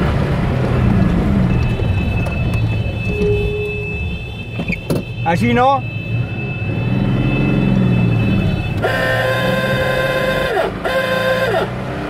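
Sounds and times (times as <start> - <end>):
car horn tooting: 2.3 - 11.8
car engine revving: 6.1 - 12.0.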